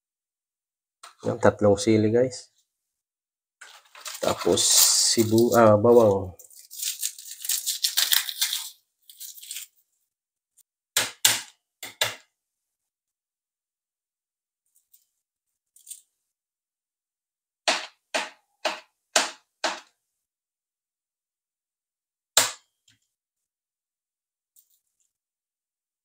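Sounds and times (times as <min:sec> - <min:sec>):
garlic skins crackling: 0:03.8 - 0:09.8
knife chopping on plastic board: 0:11.0 - 0:12.3, 0:17.7 - 0:19.9.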